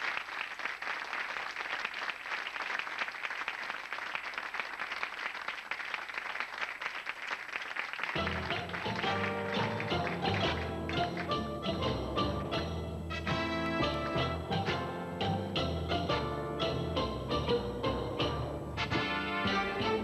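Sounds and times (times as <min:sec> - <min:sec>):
audience applauding: 0:00.0 - 0:12.3
live band playing: 0:08.2 - 0:20.0.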